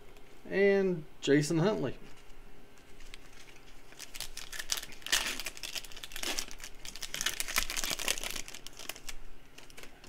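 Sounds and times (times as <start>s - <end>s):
foil wrapper crinkling: 2.9s - 10.0s.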